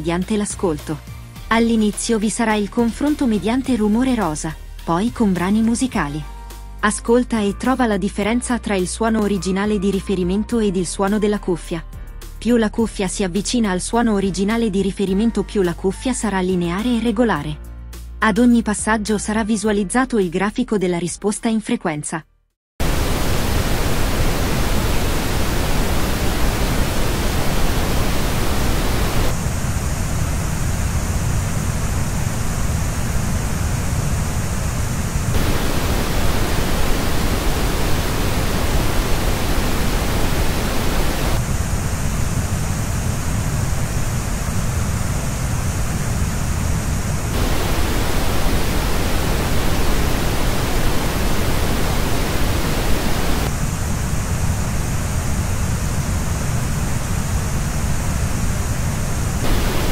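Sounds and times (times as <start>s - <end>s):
pink noise: 22.8s - 59.9s.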